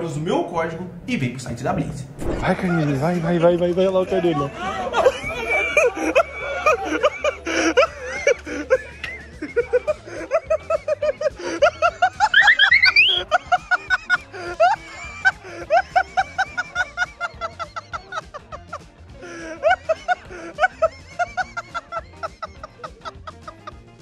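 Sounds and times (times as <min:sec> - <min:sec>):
laughing: 0:04.8 - 0:14.8.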